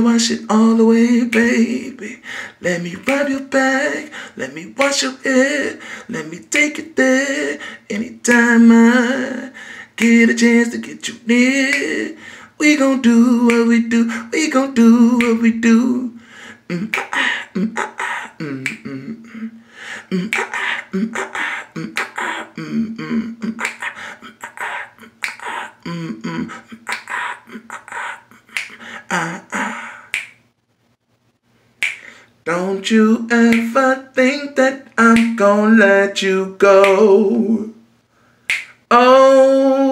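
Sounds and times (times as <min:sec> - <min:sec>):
person singing unaccompanied: 0:00.0 - 0:30.4, 0:31.8 - 0:37.9, 0:38.5 - 0:39.9
finger snaps: 0:01.3 - 0:01.6, 0:03.0 - 0:03.4, 0:04.8 - 0:05.1, 0:10.0 - 0:10.9, 0:11.6 - 0:12.0, 0:13.5 - 0:13.8, 0:15.2 - 0:15.5, 0:16.8 - 0:19.0, 0:20.2 - 0:22.5, 0:23.5 - 0:25.8, 0:26.8 - 0:28.8, 0:29.6 - 0:30.4, 0:31.8 - 0:32.2, 0:33.4 - 0:33.8, 0:35.1 - 0:35.5, 0:36.8 - 0:37.1, 0:38.5 - 0:38.9.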